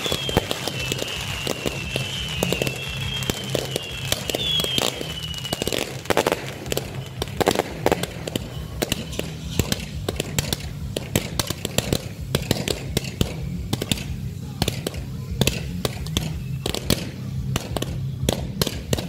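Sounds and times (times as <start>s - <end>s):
high whistle falling in pitch: 0.0s - 7.4s
firework fountains crackling: 0.0s - 19.0s.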